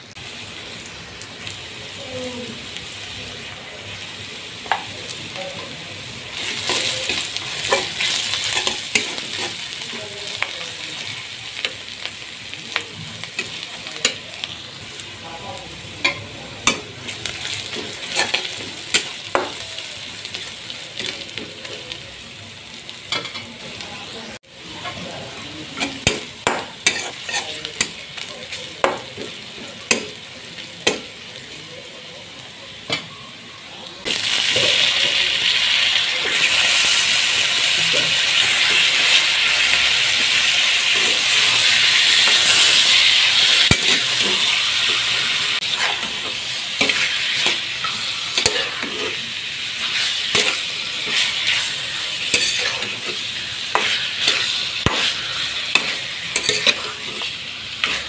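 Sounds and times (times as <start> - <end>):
onions sizzling in oil: 0.0 - 58.0
spatula scraping and knocking wok: 16.0 - 19.6, 24.7 - 30.2, 37.8 - 58.0.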